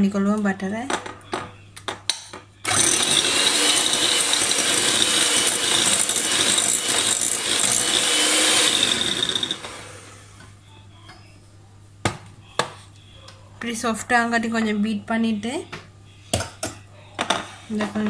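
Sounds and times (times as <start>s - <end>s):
electric hand mixer whining: 2.7s - 10.4s.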